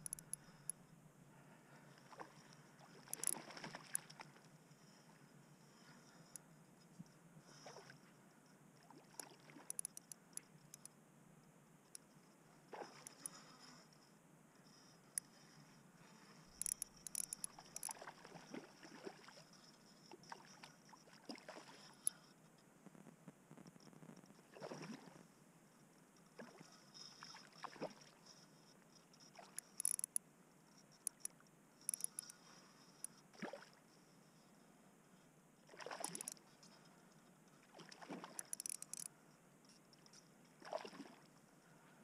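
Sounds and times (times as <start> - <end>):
small sharp clicks: 0.0 - 0.8, 2.5 - 4.3, 9.1 - 11.0, 16.5 - 18.0, 29.2 - 30.2, 30.8 - 33.2, 36.0 - 36.8, 38.3 - 40.3
water sloshing: 2.1 - 4.4.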